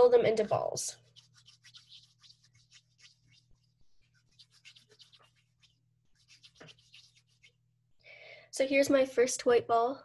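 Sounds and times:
palms rubbing dough: 0:00.1 - 0:07.6.

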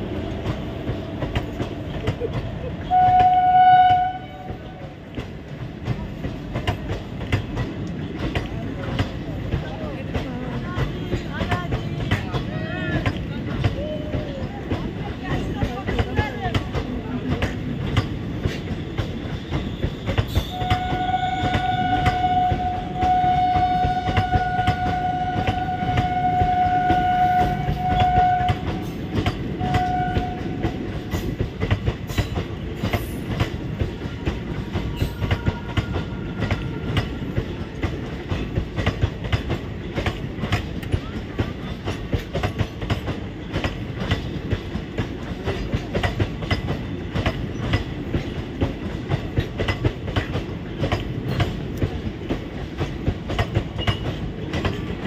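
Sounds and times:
train wheels clattering over rail joints: 0:00.0 - 0:03.6, 0:04.4 - 0:55.0
train horn: 0:02.8 - 0:04.9, 0:19.7 - 0:30.8, 0:34.9 - 0:37.3.

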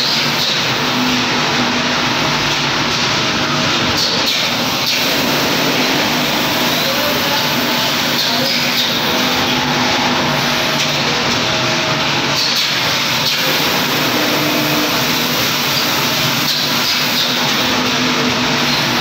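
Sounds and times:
faint machine hum: 0:00.0 - 0:19.0.

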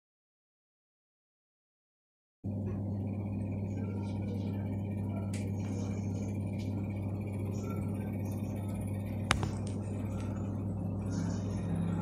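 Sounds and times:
oven humming: 0:02.5 - 0:12.0.

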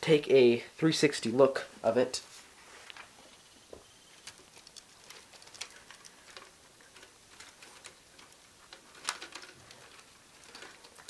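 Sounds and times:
plastic model rattling and clicking: 0:04.2 - 0:11.0.

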